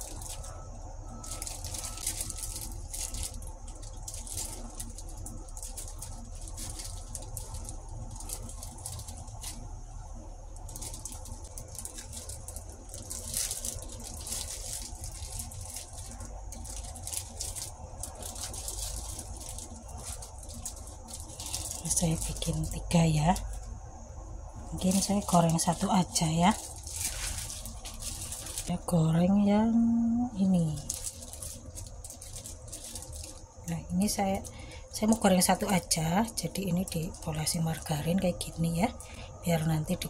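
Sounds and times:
hands rolling tortilla wraps: 0.0s - 23.7s, 24.6s - 28.9s, 29.8s - 38.8s
low steady hum: 0.0s - 40.0s
plastic glove crinkling: 0.0s - 40.0s.

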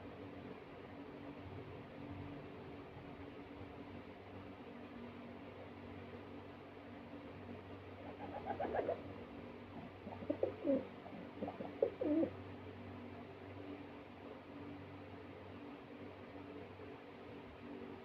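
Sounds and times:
steady low hum: 0.0s - 18.0s
pigeon cooing: 8.0s - 9.1s, 9.8s - 12.4s.

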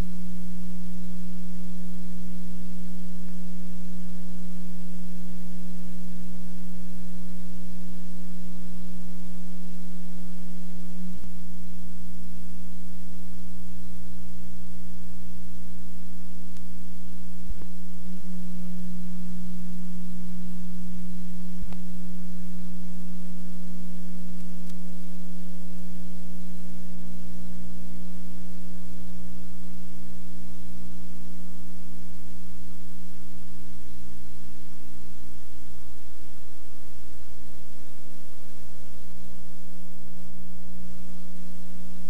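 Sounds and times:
electrical mains hum: 0.0s - 42.0s.

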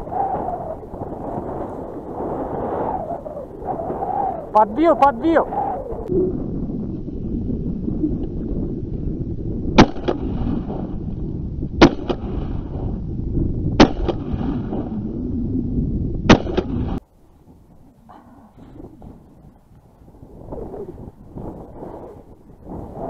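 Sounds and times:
steady low rumble: 0.0s - 23.0s
shotgun shots: 9.8s - 10.8s, 11.8s - 12.5s, 13.8s - 14.9s, 16.3s - 17.0s.

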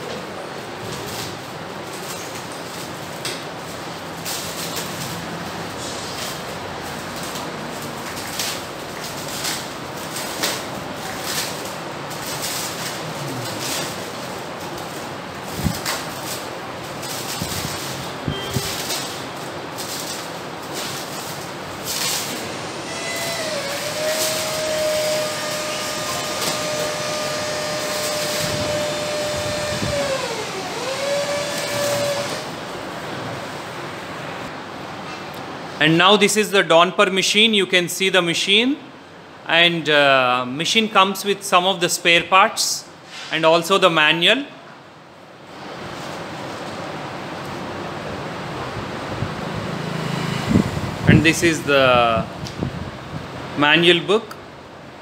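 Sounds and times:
steady background hiss: 0.0s - 55.0s
plastic wrap crinkling: 0.8s - 22.5s
motor whine: 22.8s - 32.5s.

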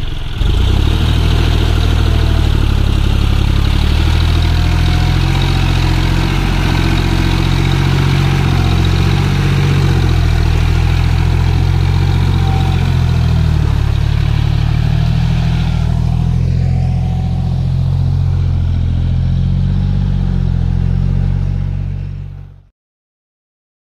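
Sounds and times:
tractor diesel engine under load: 0.0s - 22.6s.

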